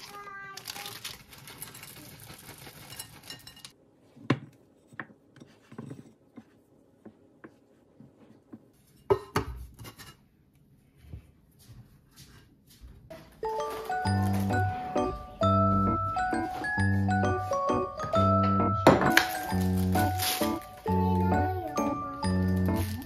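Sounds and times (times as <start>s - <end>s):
chips rustling out of plastic bag: 0.0s - 3.4s, 19.1s - 21.0s, 22.4s - 23.0s.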